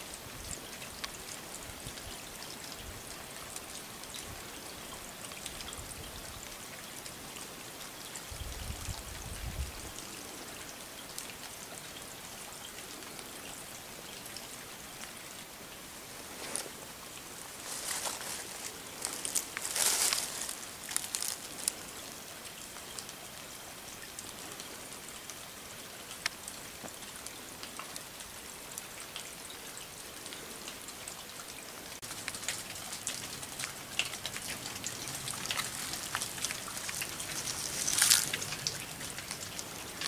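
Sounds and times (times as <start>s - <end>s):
dry leaves crunching underfoot: 17.5s - 21.9s, 35.1s - 38.9s.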